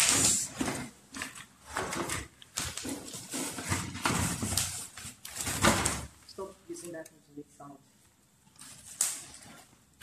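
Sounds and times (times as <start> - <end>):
cardboard rustling: 0.0 - 6.2, 8.5 - 10.0
plastic bag crinkling: 0.0 - 6.2.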